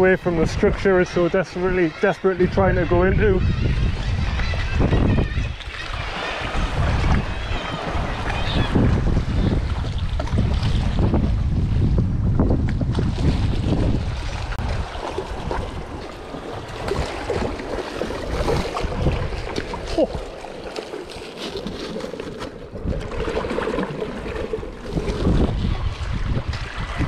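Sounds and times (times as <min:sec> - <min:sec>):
water splashing around rocks: 0:12.5 - 0:27.0.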